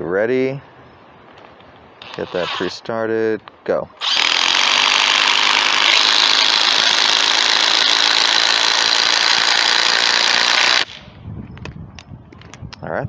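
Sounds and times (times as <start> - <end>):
impact driver hammering: 4.0 - 11.0.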